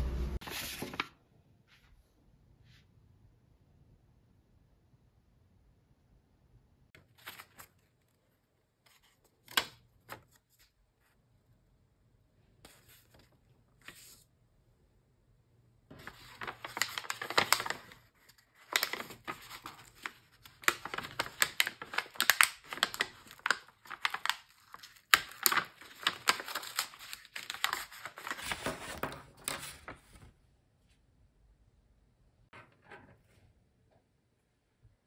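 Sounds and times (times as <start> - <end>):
paper envelope rustling: 0.4 - 1.1, 7.0 - 8.2, 12.7 - 14.3, 15.9 - 30.4.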